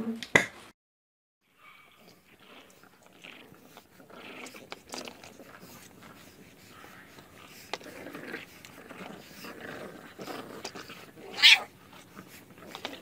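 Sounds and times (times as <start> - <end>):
puppies playing softly: 1.5 - 13.0
puppy yelping: 10.1 - 12.1.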